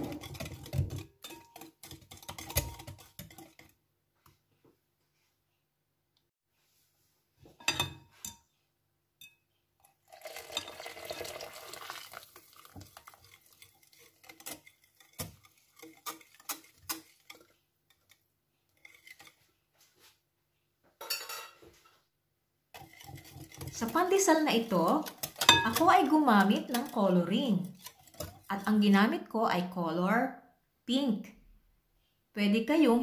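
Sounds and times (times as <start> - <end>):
whisk beating batter in glass bowl: 0.0 - 3.8, 10.1 - 19.5, 22.8 - 28.9.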